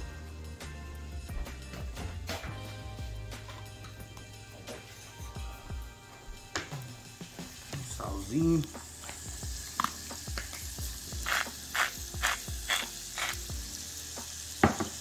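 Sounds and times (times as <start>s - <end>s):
onion sizzling in a saucepan: 7.0s - 15.0s
spice grinder grinding: 8.2s - 15.0s.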